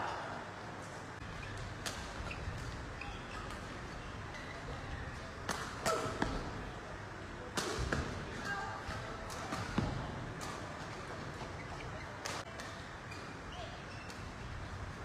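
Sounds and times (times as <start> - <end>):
shoes squeaking on court: 1.2 - 5.2, 10.8 - 14.5.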